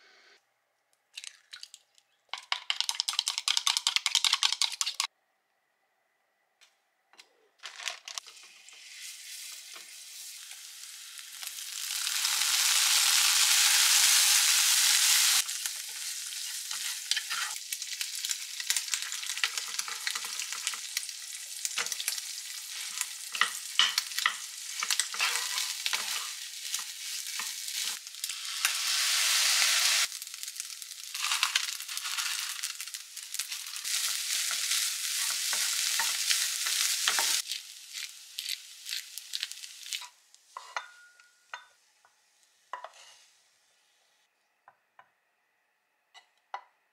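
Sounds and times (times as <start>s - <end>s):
food sizzling in oil: 8.2s - 41.0s.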